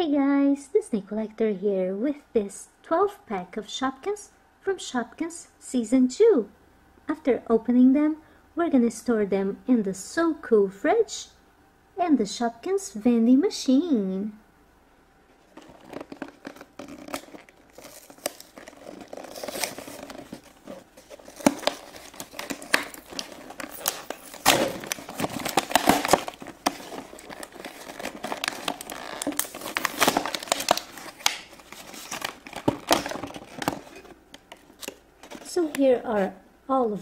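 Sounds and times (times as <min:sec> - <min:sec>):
plastic blister pack crinkling: 0:15.4 - 0:36.3.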